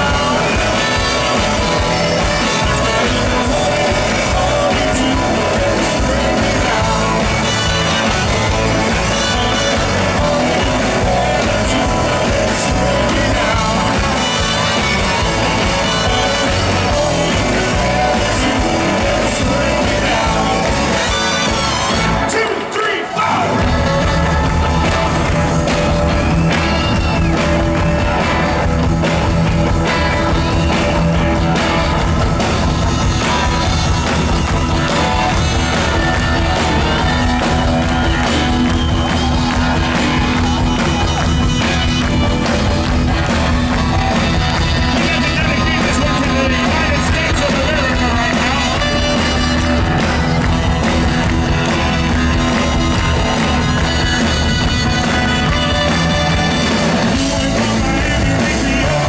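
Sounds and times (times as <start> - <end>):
man singing into microphone: 0.0 - 21.3, 44.8 - 49.4, 57.1 - 59.0
rock band playing loudly: 0.0 - 59.0.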